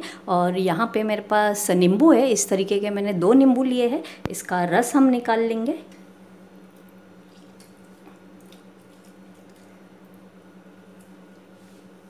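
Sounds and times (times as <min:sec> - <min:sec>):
steady low hum: 0:00.0 - 0:12.0
juice dripping and squishing: 0:06.6 - 0:11.9.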